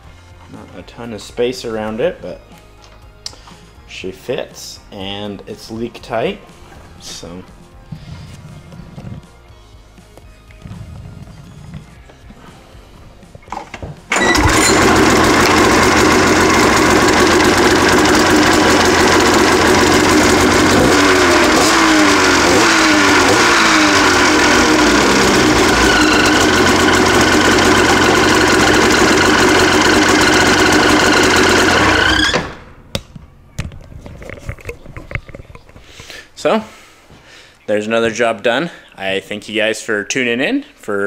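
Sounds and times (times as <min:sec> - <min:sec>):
snowmobile engine running: 0:14.2 - 0:32.3.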